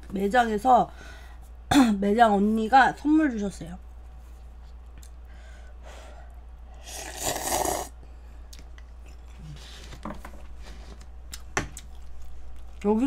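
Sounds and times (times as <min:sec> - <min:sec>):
person slurping noodles: 0:06.8 - 0:08.0.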